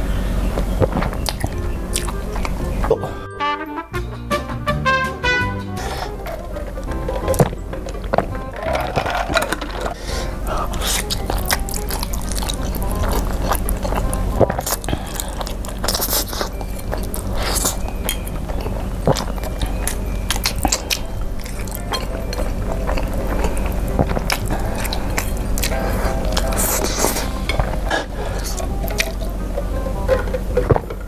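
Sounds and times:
person slurping and chewing noodles: 0:00.6 - 0:03.2, 0:08.6 - 0:31.0
wet mouth clicks: 0:00.8 - 0:03.0, 0:10.0 - 0:27.3, 0:27.9 - 0:29.3.

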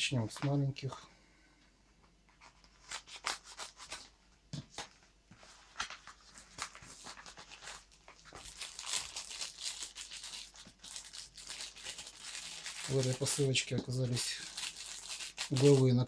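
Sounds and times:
paper envelope rustling: 0:04.7 - 0:16.0
plastic bag crinkling: 0:05.9 - 0:16.0.

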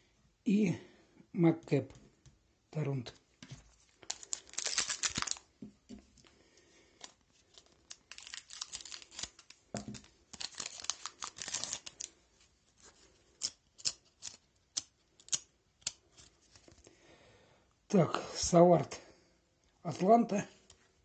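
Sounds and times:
cards ticking as handled: 0:03.9 - 0:05.5, 0:06.9 - 0:12.2, 0:13.0 - 0:16.9
foil wrapper tearing and crinkling: 0:03.9 - 0:05.5, 0:07.0 - 0:12.2, 0:13.4 - 0:16.4.

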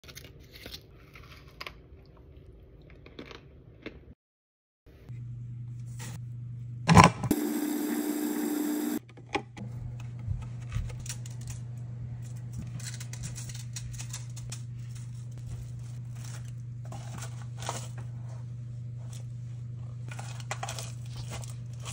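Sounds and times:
food processor motor running: 0:06.9 - 0:09.0.

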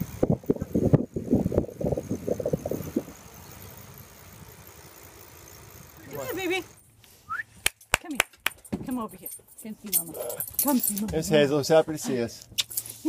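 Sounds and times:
wind rushing over microphone: 0:00.0 - 0:03.2.

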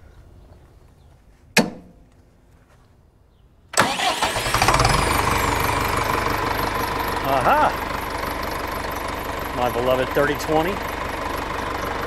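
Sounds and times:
sharp knock: 0:01.6 - 0:01.9
tractor engine running: 0:03.8 - 0:12.0.

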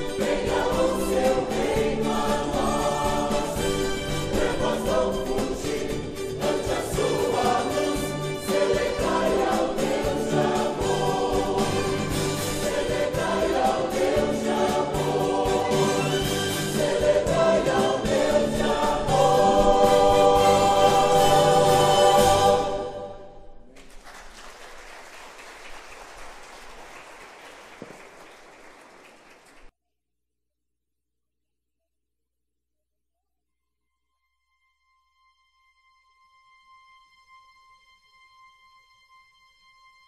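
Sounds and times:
choir singing a gospel song: 0:00.0 - 0:23.5.

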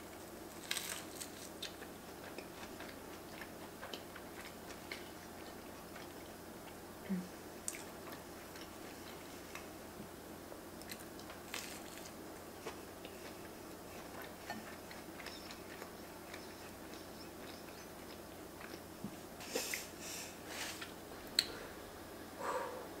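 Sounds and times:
person chewing food: 0:00.1 - 0:06.8, 0:07.6 - 0:09.7, 0:10.8 - 0:19.9
crackly rustling: 0:00.2 - 0:02.9.

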